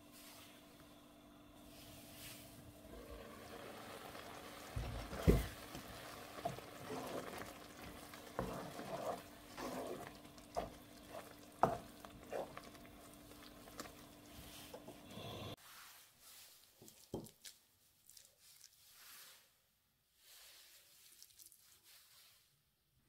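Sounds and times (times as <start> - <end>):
wooden spatula stirring and scraping: 1.6 - 19.5
sauce simmering: 2.6 - 15.6.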